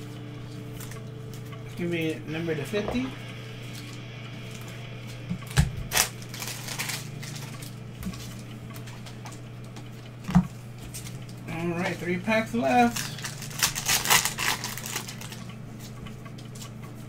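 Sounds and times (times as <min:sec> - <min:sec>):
steady low hum: 0:00.0 - 0:17.0
cards rustling: 0:05.9 - 0:08.5, 0:10.9 - 0:15.9.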